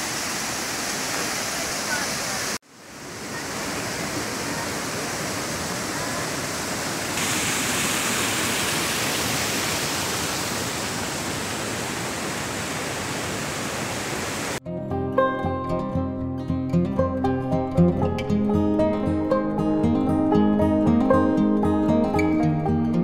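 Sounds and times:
water rushing over boulders: 0.0 - 14.6
acoustic guitar music: 14.6 - 23.0.

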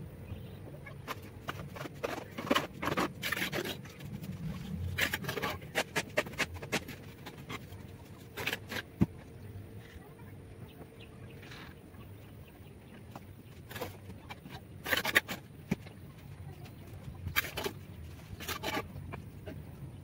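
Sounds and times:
trowel scraping mortar: 1.0 - 9.0, 13.6 - 15.4, 17.3 - 19.6.

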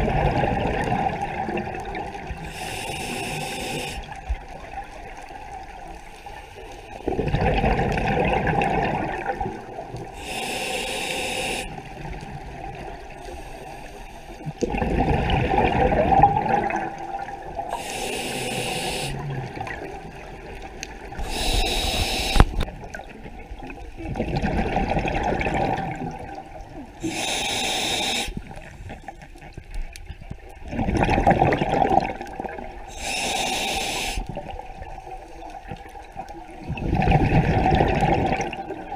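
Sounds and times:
regulator hissing inhalation: 2.5 - 4.2, 10.2 - 11.8, 17.7 - 19.2, 21.2 - 22.6, 27.0 - 28.4, 32.9 - 34.4
diver exhaling bubbles: 7.0 - 9.5, 14.6 - 19.9, 30.7 - 32.6, 36.6 - 38.9.

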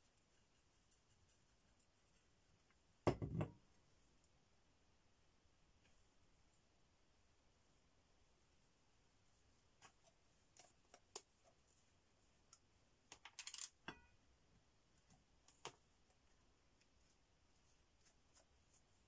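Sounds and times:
paintbrush clinking on ceramic palette: 13.8 - 14.2.

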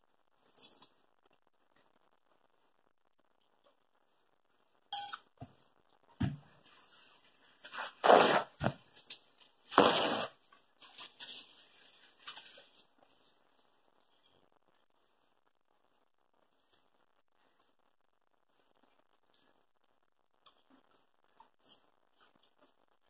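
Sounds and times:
paper napkin rustling: 6.7 - 9.1, 9.7 - 13.5.

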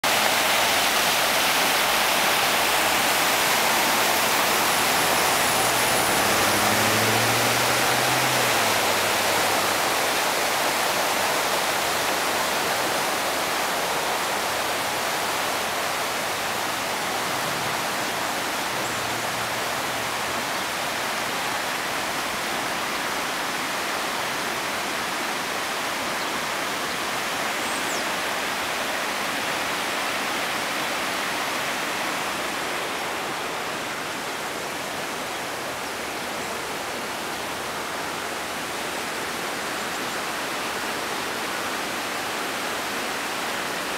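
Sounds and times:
floodwater rushing over road: 0.0 - 43.9.

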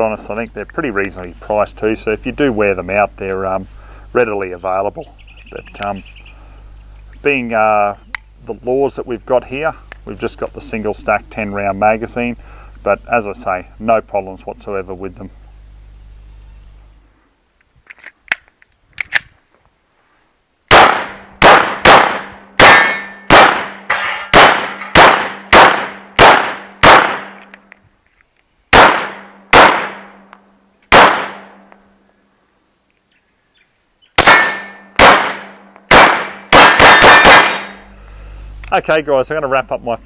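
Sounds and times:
pistol shots: 20.7 - 27.5, 28.7 - 30.2, 30.9 - 31.6, 34.2 - 37.8
steel targets clanging: 22.7 - 25.0.

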